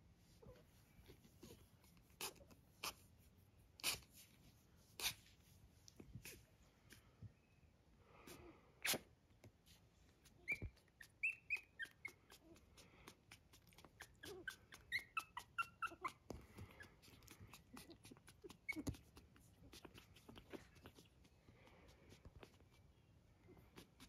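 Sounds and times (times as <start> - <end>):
puppies squeaking: 10.2 - 21.4.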